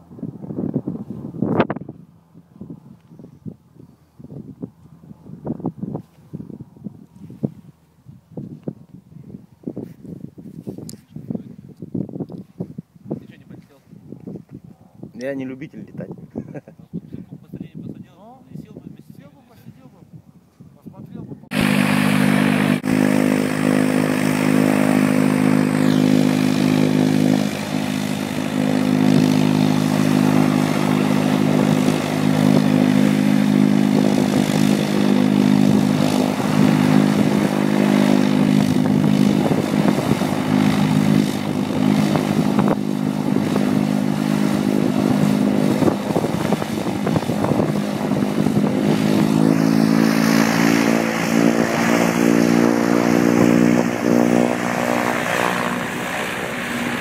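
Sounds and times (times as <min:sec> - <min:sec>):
radial piston engine running: 0:21.5 - 0:57.0.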